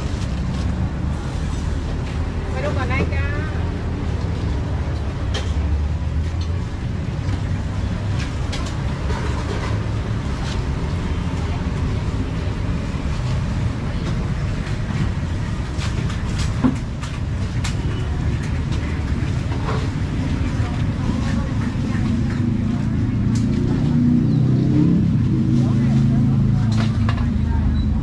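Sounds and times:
faint voices: 24.7 - 28.0.

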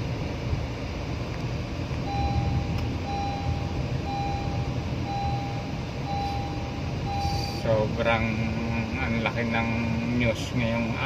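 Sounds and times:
low vehicle rumble: 0.0 - 11.0
electronic warning beeps: 2.0 - 9.0.

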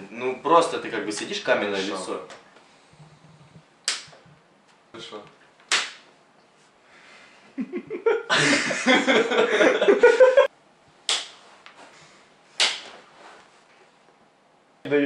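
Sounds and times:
open-handed slaps to the face: 3.8 - 4.2, 5.6 - 6.1, 11.1 - 11.8, 12.6 - 13.0.

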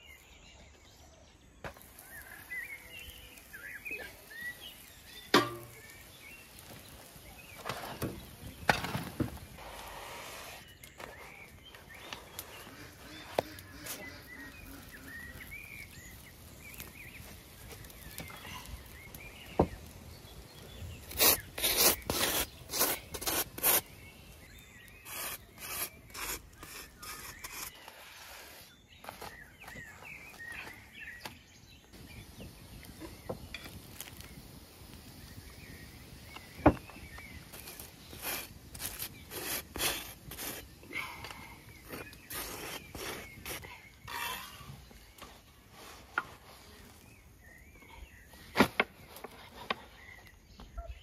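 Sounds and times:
faint birdsong: 0.0 - 51.0
knife scraping butter on bread: 21.1 - 23.8.

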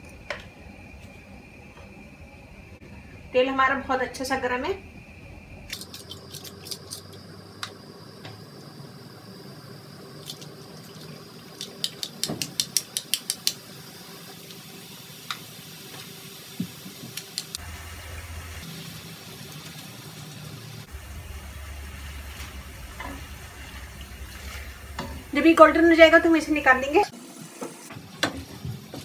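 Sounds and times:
low hum: 0.0 - 10.2, 20.7 - 27.0
hot oil sizzling: 0.0 - 29.0.

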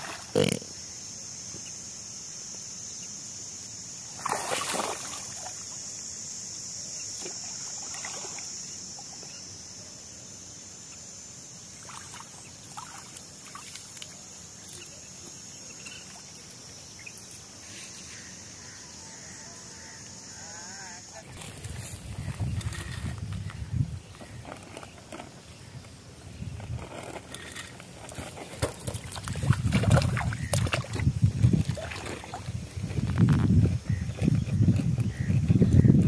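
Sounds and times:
steady high-pitched hiss: 0.0 - 36.0
water sloshing and splashing: 4.2 - 5.7, 7.2 - 8.5, 11.8 - 14.9, 28.0 - 33.4.

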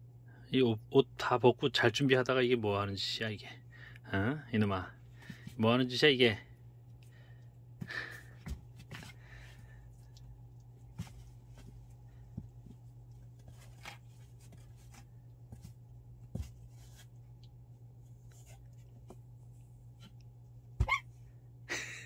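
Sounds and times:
puppy paws scratching in box: 10.0 - 20.2.

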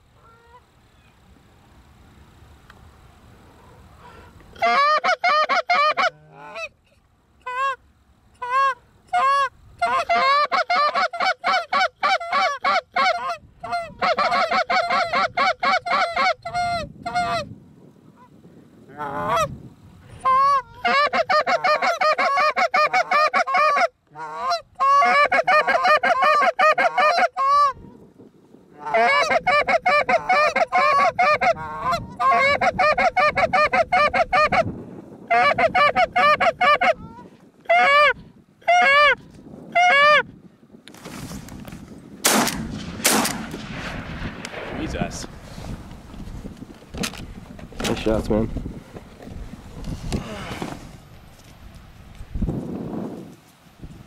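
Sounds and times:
goose calls clucking and honking: 4.0 - 6.8, 8.4 - 17.5, 18.9 - 19.5, 20.2 - 27.8, 28.8 - 34.7, 35.3 - 40.2.

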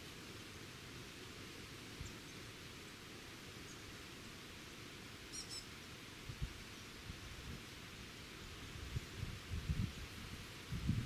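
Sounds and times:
steady hiss: 0.0 - 11.0
bird chirps: 5.3 - 5.7.

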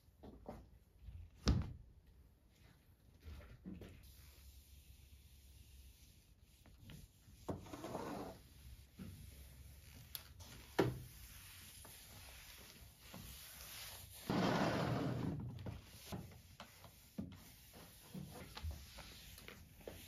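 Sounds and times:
mop swish: 3.2 - 20.0
mop sliding on laminate floor: 5.3 - 20.0.

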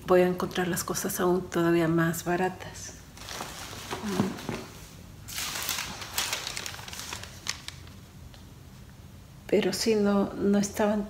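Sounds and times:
bags or paper crinkling: 3.2 - 8.1.

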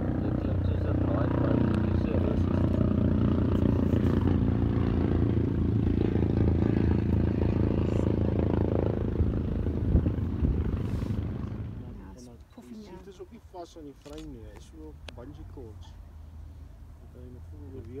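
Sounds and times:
motorcycle engines running hard: 0.0 - 12.0.

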